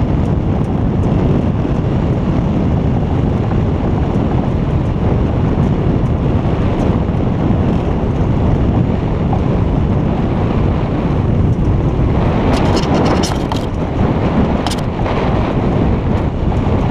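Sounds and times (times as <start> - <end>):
wind buffeting microphone: 0.0 - 16.9
sharp clicks: 11.5 - 13.8, 14.6 - 14.9.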